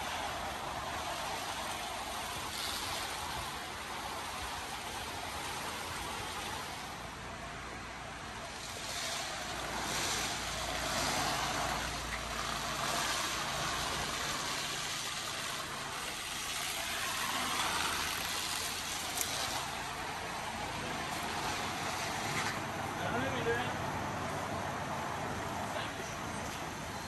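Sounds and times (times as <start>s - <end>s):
road and wind noise: 0.0s - 27.0s.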